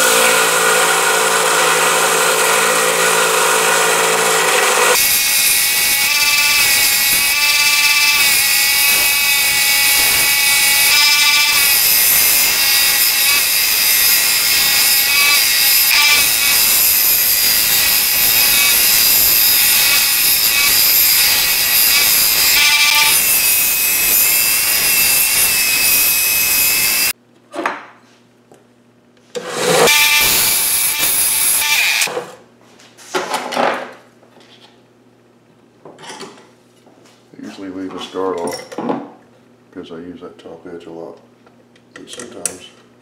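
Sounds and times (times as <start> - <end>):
belt sander grinding steel: 0.0 - 27.2, 29.4 - 32.1.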